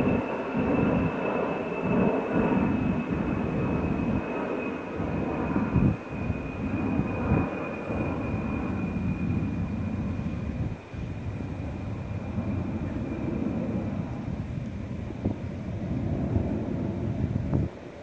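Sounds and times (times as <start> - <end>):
jet bomber flying past: 0.0 - 18.0
thin steady jet whine: 0.0 - 18.0.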